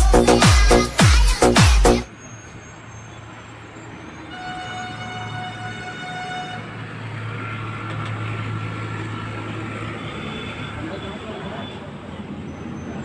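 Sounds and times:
horn-like steady tone: 0:04.3 - 0:06.8.

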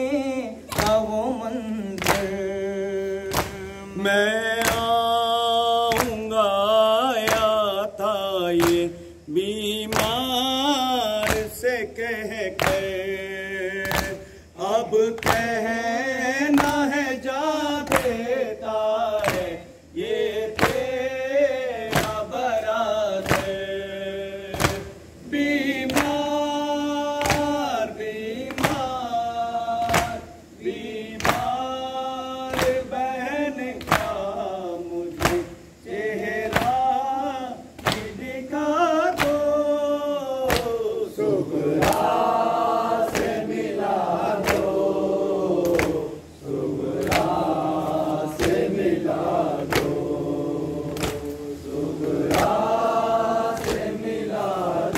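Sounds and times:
men chanting a lament: 0:00.0 - 0:54.9
hand-on-chest slaps: 0:00.7 - 0:01.2, 0:01.9 - 0:02.4, 0:03.2 - 0:03.8, 0:04.6 - 0:05.0, 0:05.9 - 0:06.3, 0:07.2 - 0:07.6, 0:08.6 - 0:08.9, 0:09.9 - 0:10.3, 0:11.2 - 0:11.6, 0:12.6 - 0:13.0, 0:13.8 - 0:14.4, 0:15.2 - 0:15.6, 0:16.5 - 0:16.9, 0:17.8 - 0:18.3, 0:19.2 - 0:21.0, 0:21.8 - 0:22.3, 0:23.2 - 0:23.8, 0:24.5 - 0:25.0, 0:25.7 - 0:26.2, 0:27.2 - 0:27.7, 0:28.4 - 0:29.1, 0:29.8 - 0:30.3, 0:31.2 - 0:31.6, 0:32.5 - 0:33.0, 0:33.7 - 0:34.3, 0:35.1 - 0:36.9, 0:37.8 - 0:38.4, 0:39.1 - 0:39.5, 0:40.5 - 0:40.9, 0:41.7 - 0:43.7, 0:44.3 - 0:45.0, 0:45.6 - 0:46.1, 0:46.8 - 0:50.2, 0:50.8 - 0:52.9, 0:53.5 - 0:54.9.

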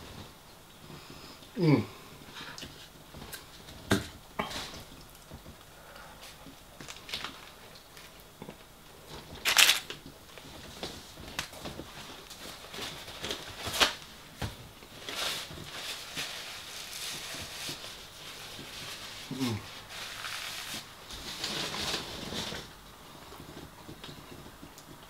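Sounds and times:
paper tissue rustling: 0:06.2 - 0:08.2, 0:09.0 - 0:23.8.

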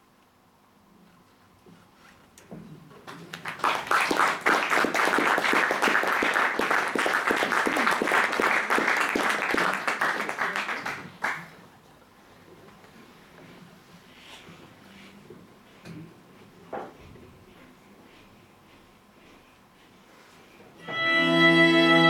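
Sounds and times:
audience applause: 0:03.1 - 0:11.6.

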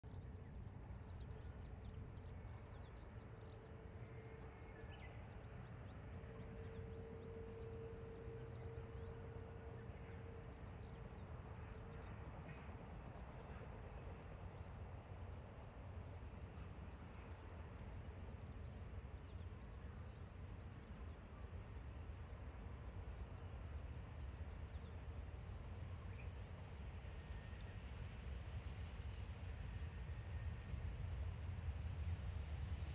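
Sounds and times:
distant train rumble: 0:00.0 - 0:32.9.

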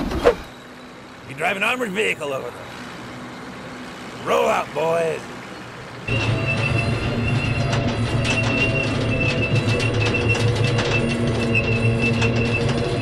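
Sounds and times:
armored vehicle engine running: 0:00.0 - 0:13.0
solar panels clicking and creaking: 0:06.1 - 0:13.0.

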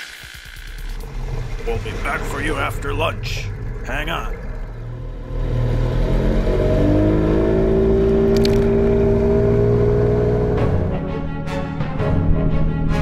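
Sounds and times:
motorboat engine rumble: 0:01.0 - 0:11.0
brief crackle: 0:08.3 - 0:08.7.

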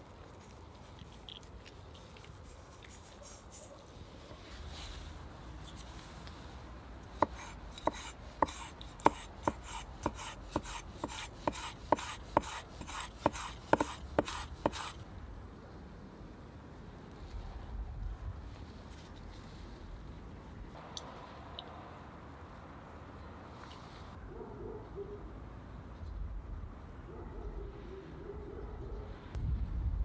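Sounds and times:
knife chopping on wooden board: 0:07.2 - 0:14.9.

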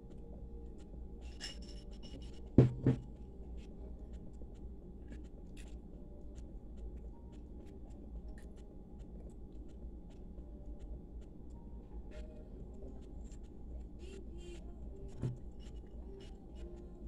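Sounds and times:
glass knocking on a table: 0:02.6 - 0:03.1.

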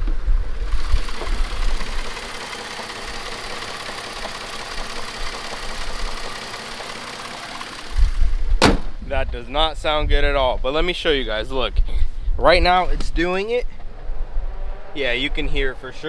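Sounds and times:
car engine idling roughly: 0:00.6 - 0:08.2.

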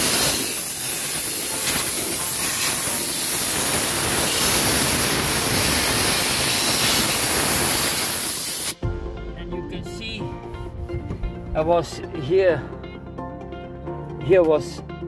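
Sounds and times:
air blow gun hissing: 0:00.0 - 0:08.8.

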